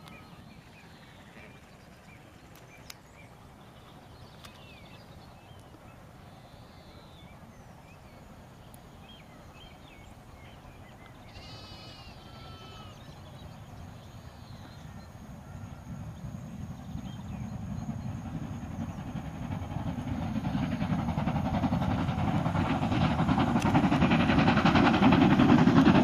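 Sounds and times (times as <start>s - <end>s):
small birds chirping: 0.0s - 19.1s
approaching steam train: 0.0s - 26.0s
low wind rumble: 0.0s - 26.0s
sheep bleating: 11.3s - 13.0s.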